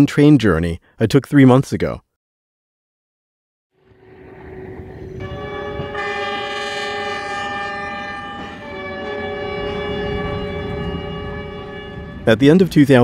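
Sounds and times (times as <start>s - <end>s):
train horn blast: 3.8s - 12.3s
diesel train rumbling: 3.8s - 13.0s.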